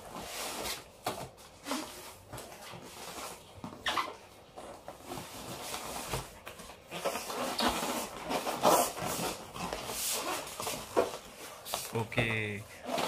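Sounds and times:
cardboard box rustling and scraping: 4.6s - 11.8s.

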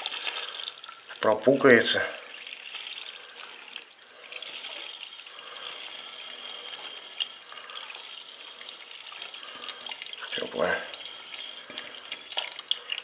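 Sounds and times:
water running into drain pipe: 0.0s - 13.0s.

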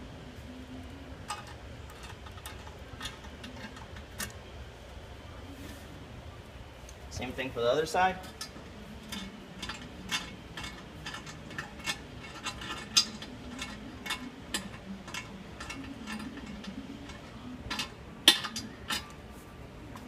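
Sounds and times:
hand tools clicking on bolt: 8.3s - 19.1s.

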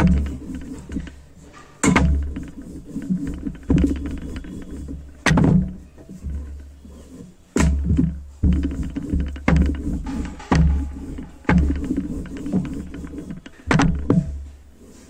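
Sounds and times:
rolling pin knocking on board: 1.8s - 6.7s, 7.6s - 14.4s.

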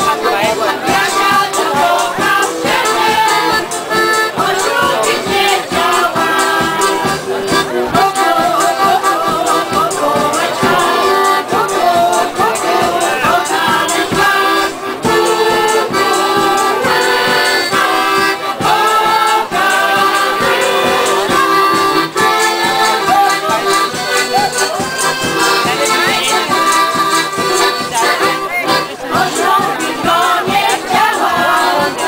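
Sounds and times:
women's choir singing: 0.0s - 23.6s, 28.1s - 32.0s
bass drum beat: 0.0s - 28.5s
accordions: 0.0s - 32.0s.

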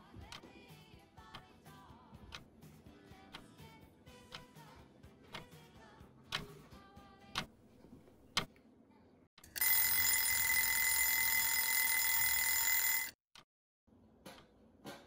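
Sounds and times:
kitchen timer bell ringing: 9.5s - 13.2s.

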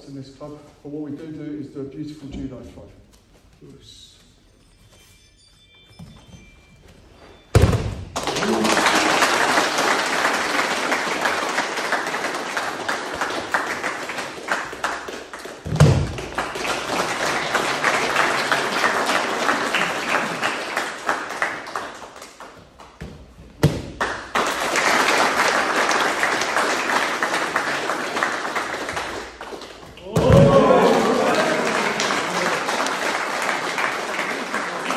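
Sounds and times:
crowd applauding: 8.1s - 22.6s, 24.0s - 34.9s.

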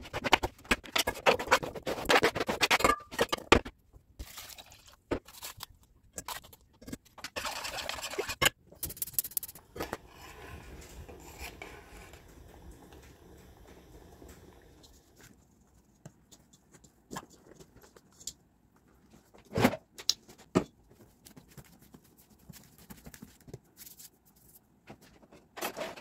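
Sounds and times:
boiling pot hiss: 9.6s - 15.4s
knife scraping cutting board: 9.7s - 12.3s.

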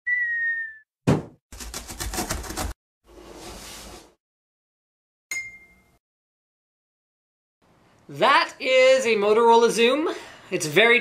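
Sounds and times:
falling whistle: 0.0s - 0.9s
sharp thump: 1.1s - 1.4s
bright ding: 5.3s - 6.0s.

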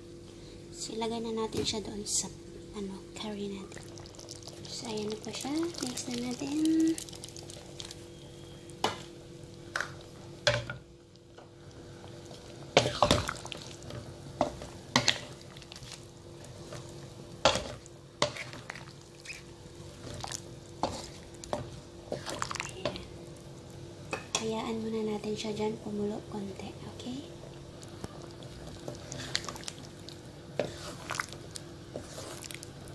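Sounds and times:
steady low hum: 0.0s - 32.9s
spatula scraping a pan: 30.6s - 31.2s, 31.9s - 32.6s.

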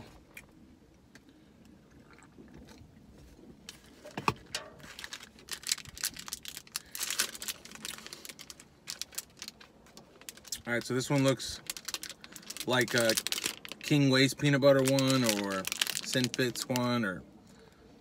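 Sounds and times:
plastic wrapper crinkling: 4.4s - 17.1s.

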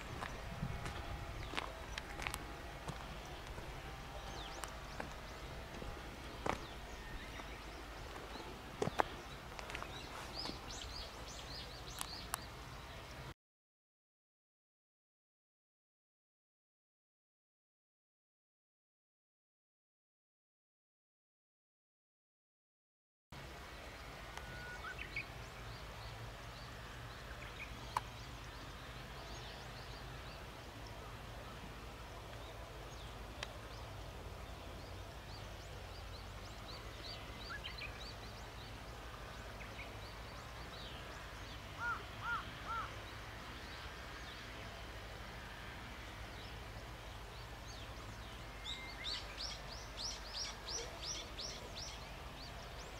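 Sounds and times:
steady low rumble: 0.0s - 12.8s
birds calling: 0.0s - 13.1s, 24.4s - 44.8s.

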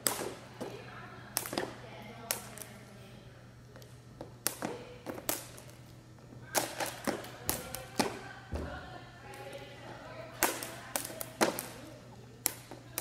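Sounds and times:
jump rope slapping gym floor: 0.0s - 0.4s, 1.4s - 2.7s, 3.8s - 5.8s, 10.4s - 11.8s, 12.4s - 13.0s.

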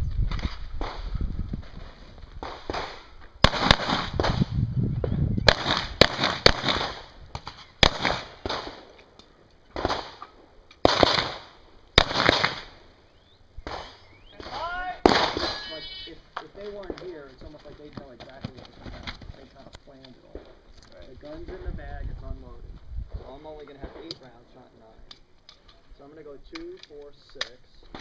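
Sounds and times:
pistol shots with echo: 2.4s - 4.4s, 5.5s - 7.1s, 7.8s - 8.8s, 10.8s - 12.7s.

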